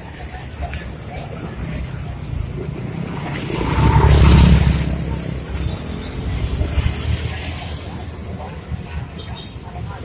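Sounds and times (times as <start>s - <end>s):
traffic background: 0.0s - 10.0s
vehicle passing close by: 2.6s - 7.4s.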